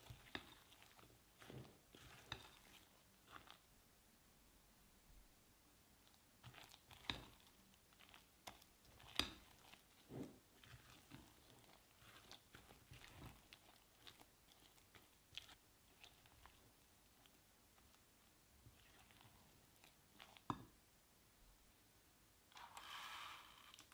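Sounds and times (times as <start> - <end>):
spatula squelching in batter: 0.0 - 3.7, 6.0 - 20.7.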